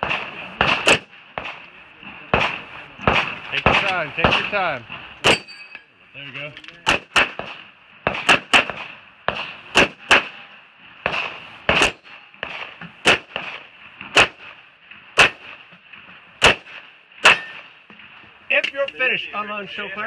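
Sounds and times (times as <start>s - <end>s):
pistol shots: 0.0s - 1.7s, 2.3s - 5.6s, 6.8s - 14.6s, 15.2s - 15.7s, 16.4s - 17.9s.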